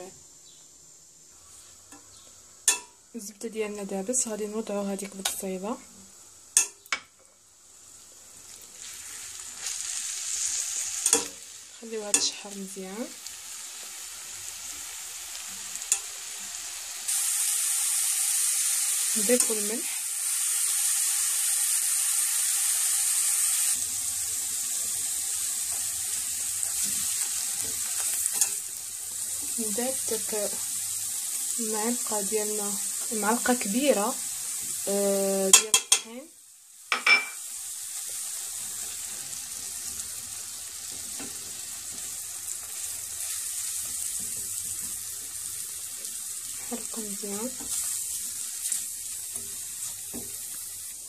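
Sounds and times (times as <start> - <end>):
onion sizzling in butter: 1.2 - 51.0
spatula stirring in pan: 38.0 - 51.0.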